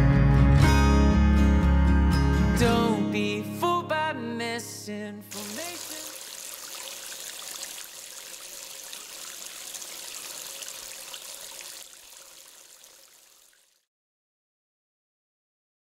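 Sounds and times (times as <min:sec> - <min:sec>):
stream trickling over rocks: 0:05.3 - 0:13.9.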